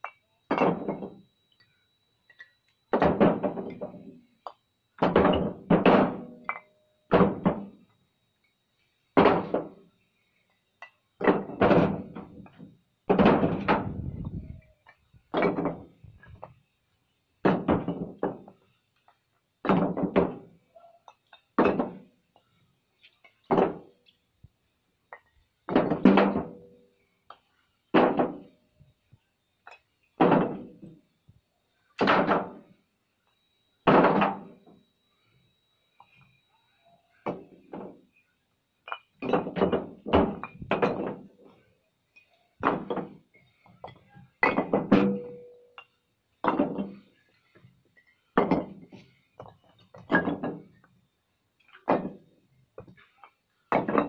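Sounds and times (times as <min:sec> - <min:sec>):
bricks clunking onto a pile: 0:00.5 - 0:01.2, 0:02.4 - 0:04.0, 0:05.0 - 0:07.8, 0:09.2 - 0:09.8, 0:11.2 - 0:14.4, 0:15.3 - 0:16.6, 0:17.4 - 0:18.6, 0:21.2 - 0:22.1, 0:25.2 - 0:26.6, 0:32.0 - 0:32.7, 0:33.9 - 0:34.6, 0:38.9 - 0:41.3, 0:42.6 - 0:45.5, 0:46.4 - 0:47.0, 0:48.3 - 0:50.9, 0:51.7 - 0:54.0.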